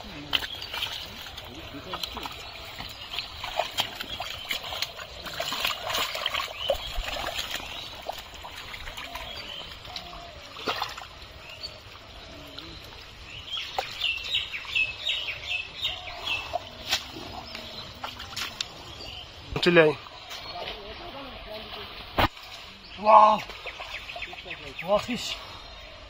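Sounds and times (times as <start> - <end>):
hands splashing in muddy water: 0.0 - 11.2, 16.2 - 18.9
bird chirping: 0.0 - 26.0
fish slapping into basin: 0.2 - 11.1.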